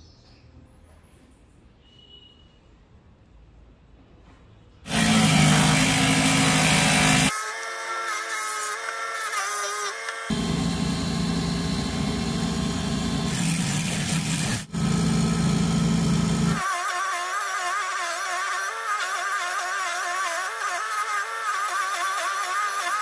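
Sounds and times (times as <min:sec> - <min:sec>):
table saw motor hum: 0:04.9 - 0:08.0, 0:09.9 - 0:16.7
saw blade cutting plastic sheet: 0:04.9 - 0:23.0.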